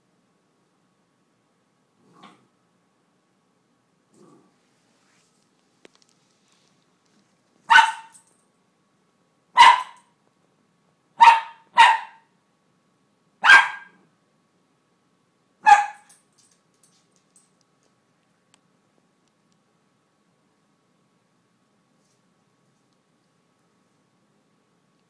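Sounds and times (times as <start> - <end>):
dog barking sharply: 7.7 - 8.2, 9.6 - 10.1, 11.2 - 12.3, 13.4 - 14.0, 15.6 - 16.1.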